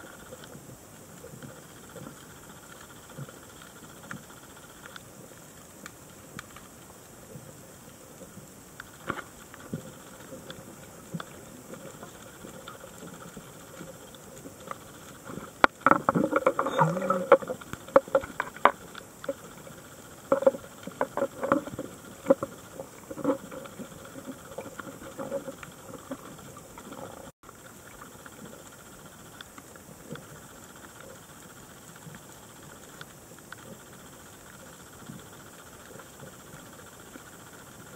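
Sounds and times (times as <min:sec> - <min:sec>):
underwater hiss: 0:00.0 - 0:27.3
diver's exhaled bubbles: 0:16.0 - 0:18.5.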